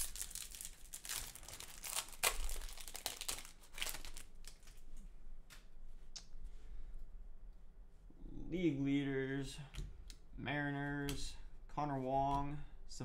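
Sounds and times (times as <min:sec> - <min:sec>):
foil wrapper crinkling: 0:00.0 - 0:04.8.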